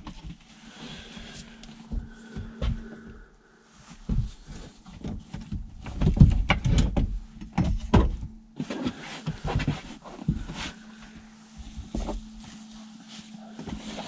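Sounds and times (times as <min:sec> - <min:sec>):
seat cover knocks and thumps: 0:04.0 - 0:10.7.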